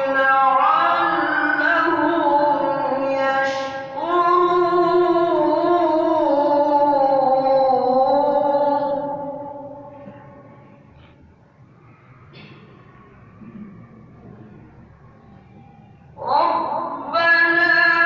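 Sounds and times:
man chanting melodically: 0:00.0 - 0:09.8, 0:16.2 - 0:18.0.

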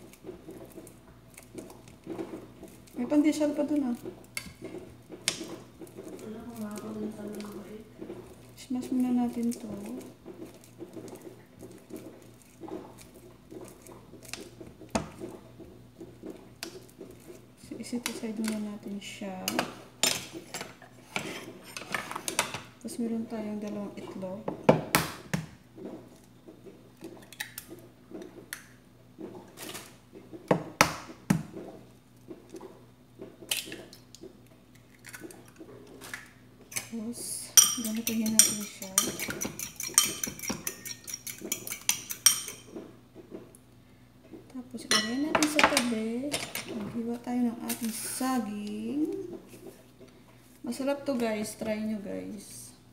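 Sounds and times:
banana being mashed with fork: 0:00.0 - 0:21.9, 0:37.6 - 0:43.4.

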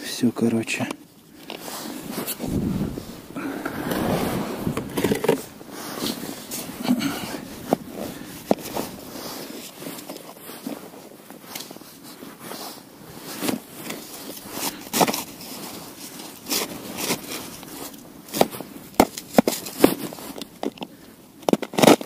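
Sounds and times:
footsteps crunching in snow: 0:01.6 - 0:20.4.

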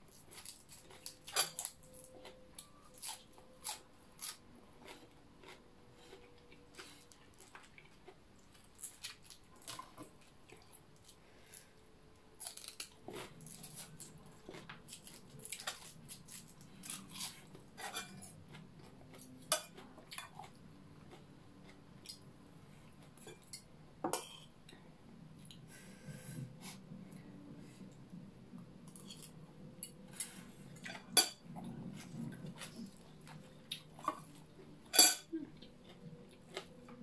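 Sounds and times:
faint low hum: 0:00.0 - 0:37.0
cutlery clinking on a plate: 0:34.9 - 0:35.3.

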